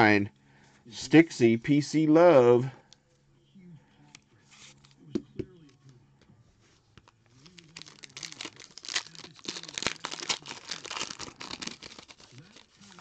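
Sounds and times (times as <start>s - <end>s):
wrapper being torn open: 7.3s - 13.0s.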